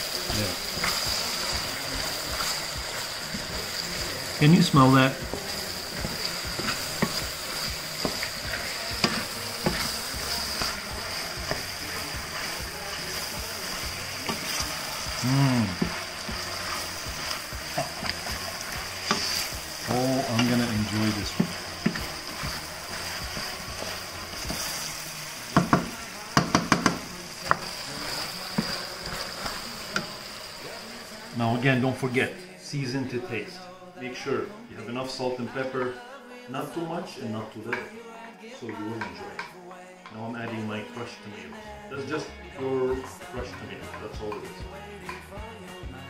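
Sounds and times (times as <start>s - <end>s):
vegetables sizzling in a pan: 0.0s - 37.9s, 38.6s - 46.0s
wooden spoon scraping a pan: 0.2s - 30.9s.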